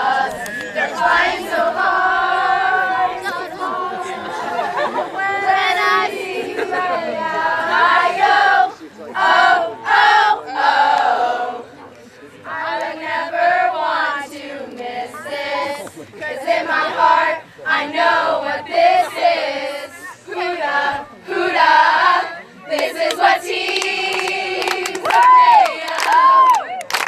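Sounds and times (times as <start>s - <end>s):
girls singing in unison: 0.0s - 11.7s, 12.4s - 26.6s
cheering and shouting: 24.9s - 27.0s.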